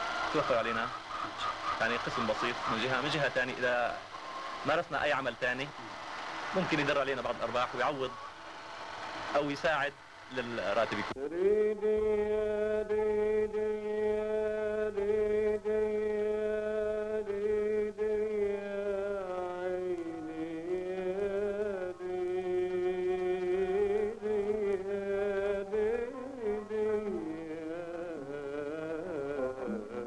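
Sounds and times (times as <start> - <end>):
ornamented melody over drone: 20.0 - 30.0.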